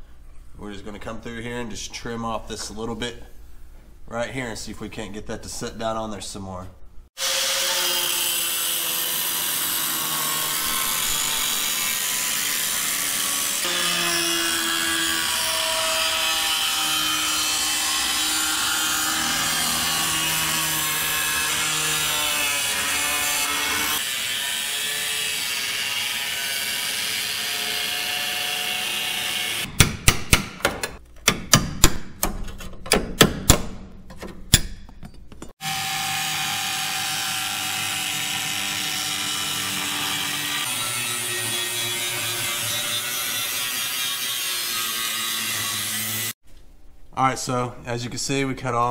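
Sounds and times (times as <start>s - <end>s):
power tool cutting sheet steel: 7.2s - 29.7s, 35.6s - 46.4s.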